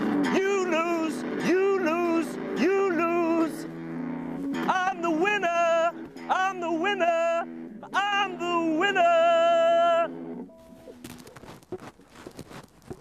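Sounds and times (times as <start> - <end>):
faint outdoor sound: 0.0 - 13.0
high voice singing long notes: 0.1 - 10.2.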